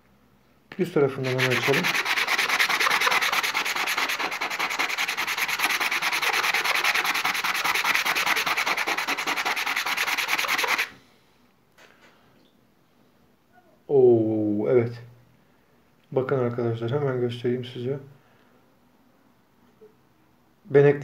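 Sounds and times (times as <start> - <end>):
stone rasping on wet sandpaper: 1.2 - 10.9.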